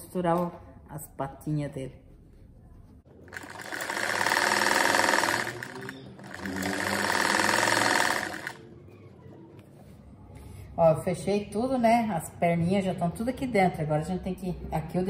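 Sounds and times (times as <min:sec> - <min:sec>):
sewing machine stitching: 0:03.3 - 0:08.6.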